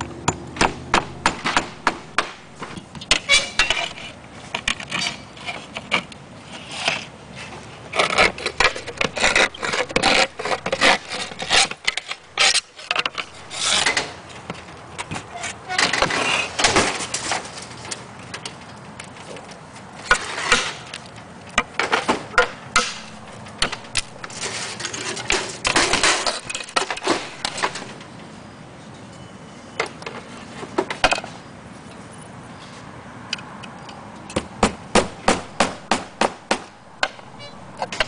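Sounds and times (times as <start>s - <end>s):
roofing slates clinking: 0.0s - 7.1s, 7.9s - 14.7s, 15.3s - 28.1s, 35.1s - 38.0s
hammer striking nail: 0.3s - 2.8s, 34.4s - 37.2s.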